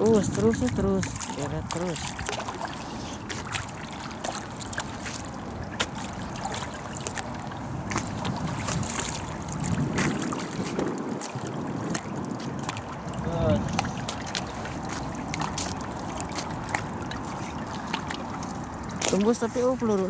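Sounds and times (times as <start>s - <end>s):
stingray splashing at water surface: 0.0s - 20.0s.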